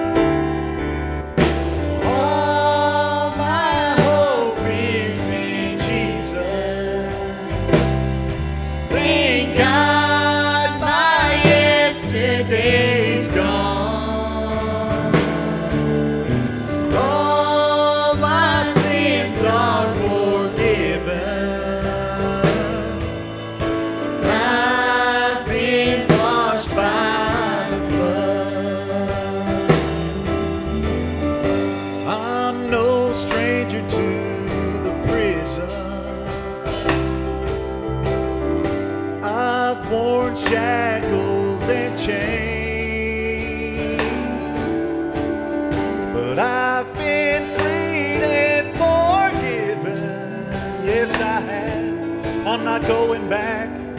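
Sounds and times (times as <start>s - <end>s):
acoustic guitar: 0.0s - 53.9s
bass guitar: 0.0s - 53.9s
singers in harmony: 2.0s - 36.9s.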